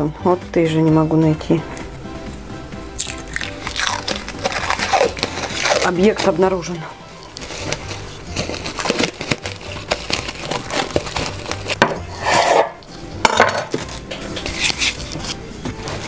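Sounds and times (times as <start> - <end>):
cling film crinkling: 3.0 - 6.5, 7.2 - 11.8, 13.7 - 16.0.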